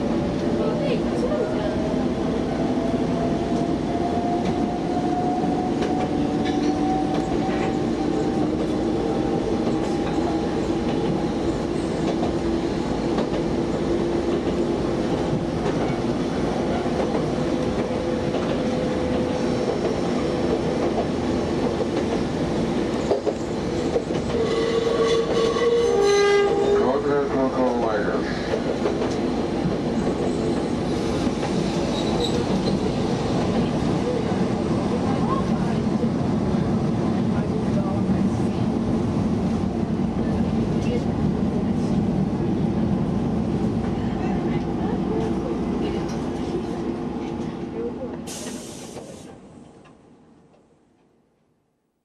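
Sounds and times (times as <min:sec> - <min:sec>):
loud high train horn tone: 0:24.3 - 0:27.3.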